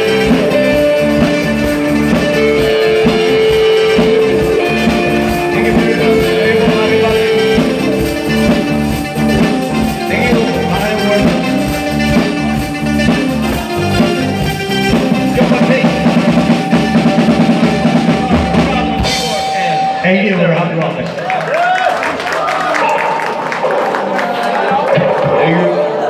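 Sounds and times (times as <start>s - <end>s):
pulsing drum beat: 0.0s - 20.6s
live rock band playing: 0.0s - 26.0s.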